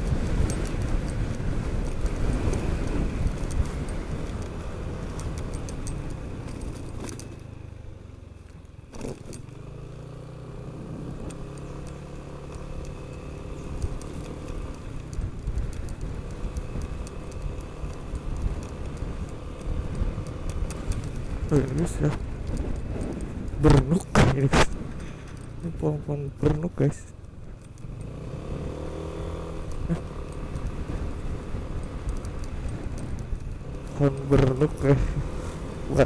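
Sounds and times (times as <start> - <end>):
light rattling clicks: 0.0 - 10.1, 11.0 - 36.0
road and wind noise: 0.0 - 36.0
scooter engine running: 0.0 - 36.0.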